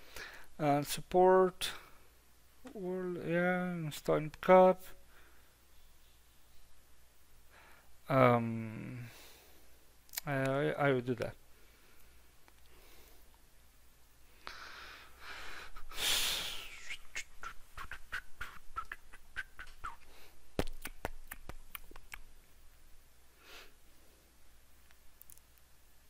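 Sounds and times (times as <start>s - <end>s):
man breathing: 0.0s - 0.6s, 5.0s - 5.6s, 7.5s - 8.0s, 9.0s - 9.8s, 11.5s - 13.4s, 14.3s - 16.9s.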